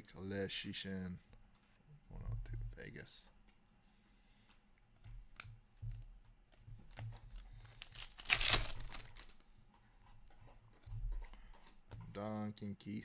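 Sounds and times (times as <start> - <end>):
papery tearing rustle: 7.6 - 9.4.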